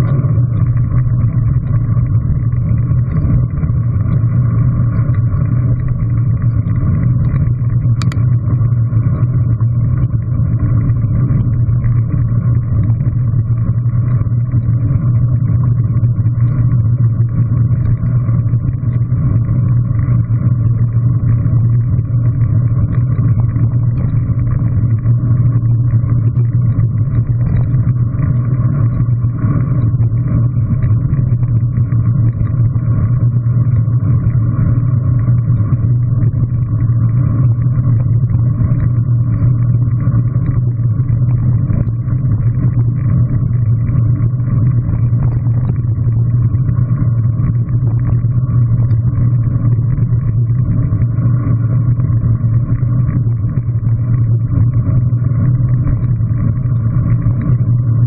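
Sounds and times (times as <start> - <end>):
wind rumble: 0.0 - 58.0
click: 8.0 - 8.2.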